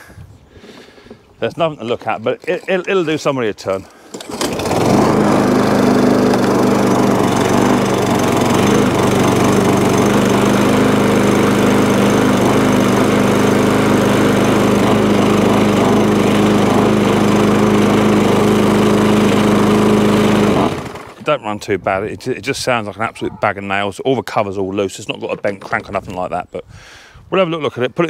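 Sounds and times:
lawn mower engine running: 3.8s - 21.3s.

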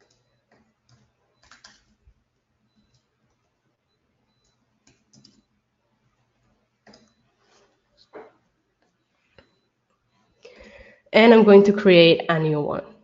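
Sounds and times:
faint keyboard typing: 0.0s - 5.5s, 6.1s - 10.9s.

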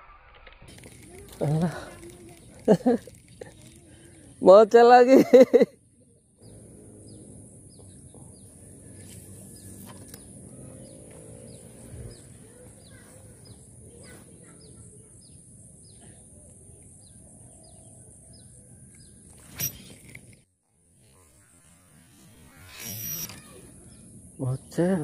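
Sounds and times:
bird chirping: 6.0s - 20.4s.

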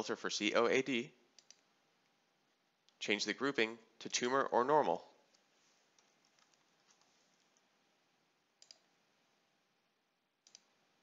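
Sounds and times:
mouse clicks: 1.4s - 1.6s, 8.6s - 8.8s, 10.4s - 10.7s.

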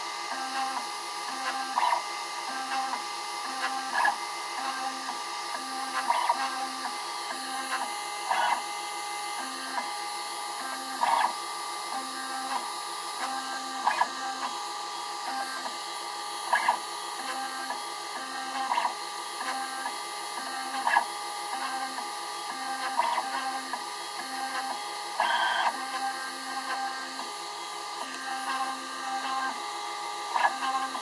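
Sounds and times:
stepper motors moving: 30.2s - 31.0s.

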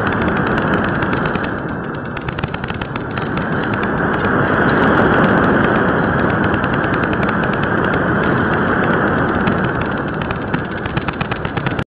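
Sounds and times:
rushing airflow: 0.0s - 11.8s
dense crackling clicks: 0.0s - 11.9s.

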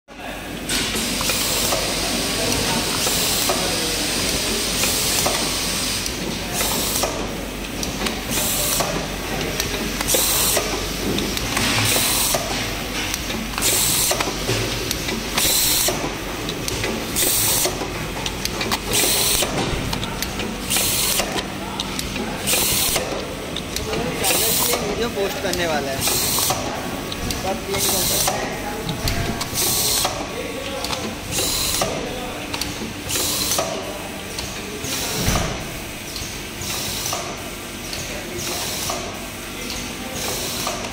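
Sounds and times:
machine mechanical clatter: 4.8s - 33.8s.

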